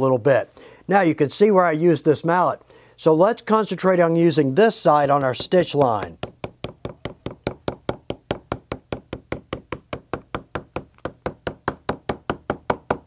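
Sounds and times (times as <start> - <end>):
mallet tapping on leather: 5.4 - 13.0.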